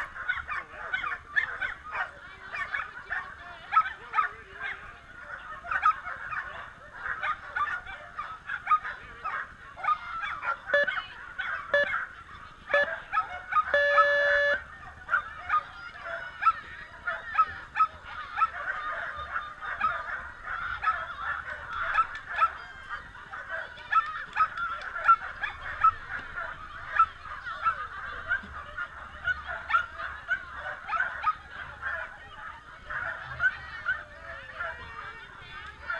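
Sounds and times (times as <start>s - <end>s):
dogs barking and yelping: 0.0s - 35.9s
electronic start beeps: 13.8s - 14.6s.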